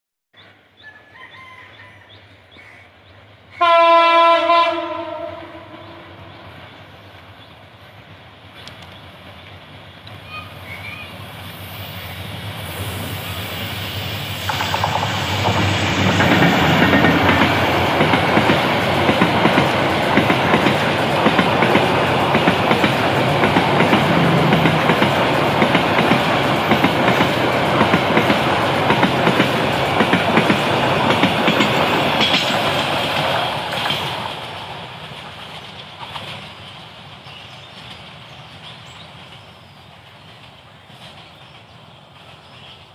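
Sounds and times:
train wheels clattering over joints: 14.2 - 41.7.

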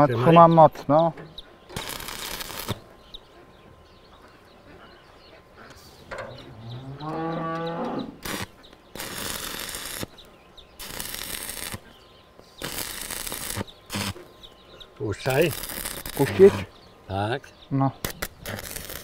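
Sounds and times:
electric welder crackling: 1.7 - 2.9, 8.2 - 11.9, 12.6 - 14.3, 15.2 - 16.7, 18.0 - 19.0
cow mooing: 6.4 - 8.2.

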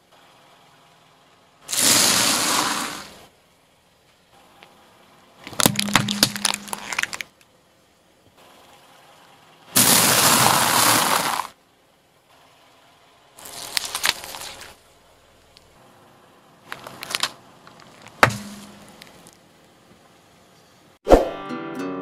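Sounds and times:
objects crackling under car tyre: 1.7 - 3.3, 5.4 - 7.6, 9.8 - 11.6, 13.4 - 15.8, 16.6 - 20.1.

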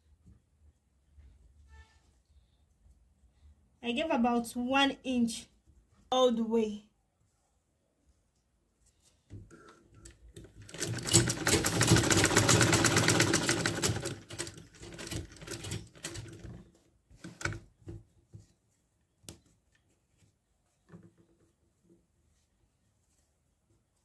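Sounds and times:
sewing machine stitching: 10.4 - 16.6.

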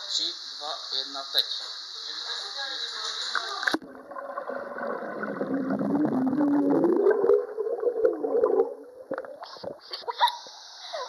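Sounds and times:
underwater bubbling and churning: 3.7 - 10.0.

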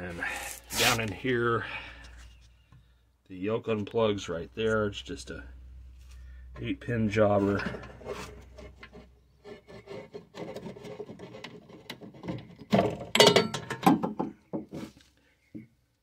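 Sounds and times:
wires and plastic rubbing: 0.3 - 1.3, 7.4 - 12.8.

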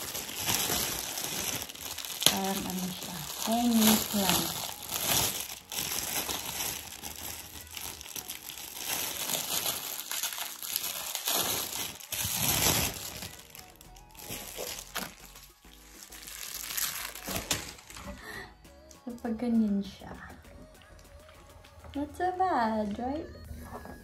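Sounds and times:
plastic bag crinkling: 0.0 - 18.4
soft background music: 0.0 - 24.0.

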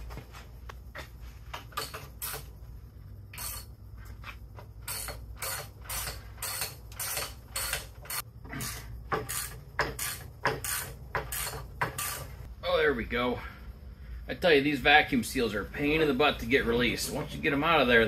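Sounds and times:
ratchet wrench clicking: 3.3 - 3.7, 4.8 - 12.3.

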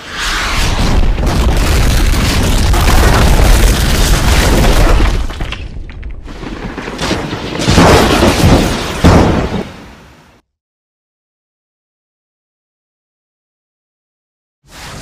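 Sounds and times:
deep rumbling explosion boom: 0.6 - 5.9.

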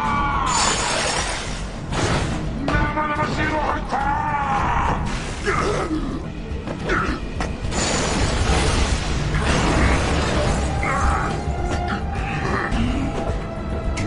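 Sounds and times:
dramatic soundtrack music: 0.0 - 14.0.

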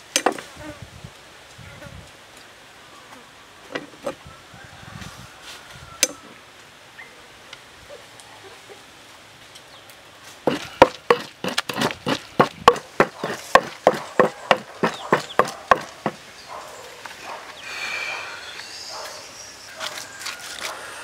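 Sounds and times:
wooden pestle pounding: 10.5 - 16.2.

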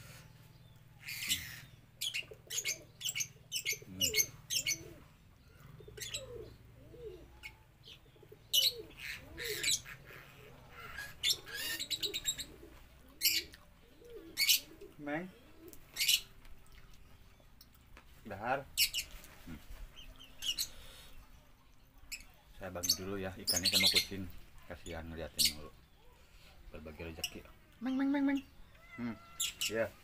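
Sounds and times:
bird cooing: 0.0 - 17.4, 22.1 - 24.4.

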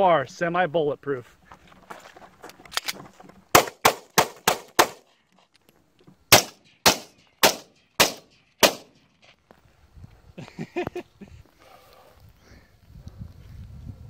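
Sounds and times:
pistol shots: 3.5 - 5.0, 6.3 - 9.0
rifle shots: 3.5 - 5.0, 6.3 - 9.0.

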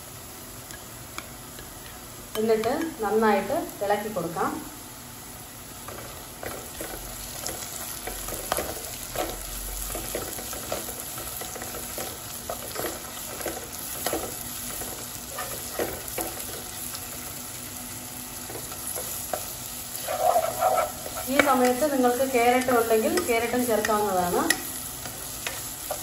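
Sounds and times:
vegetables sizzling in oil: 0.0 - 26.0
plastic spoon scraping pan: 20.0 - 21.7.

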